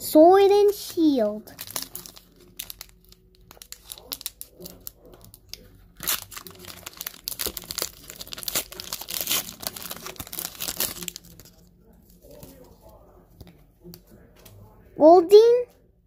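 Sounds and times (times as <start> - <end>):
foil wrapper tearing and crinkling: 0.7 - 12.7.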